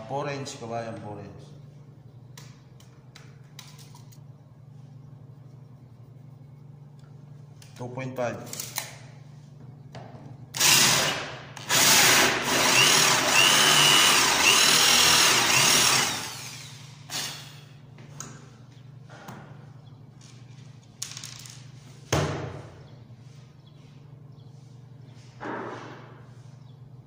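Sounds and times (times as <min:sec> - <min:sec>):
cordless drill boring into wood: 0:10.6 - 0:17.6
drill bit squealing: 0:11.7 - 0:17.6.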